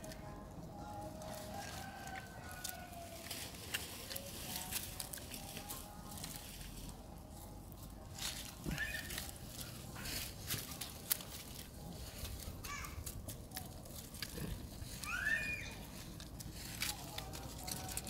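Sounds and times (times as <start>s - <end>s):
leaf litter rustling: 0.9s - 18.0s
high-pitched animal calls: 8.6s - 9.4s, 14.9s - 16.0s.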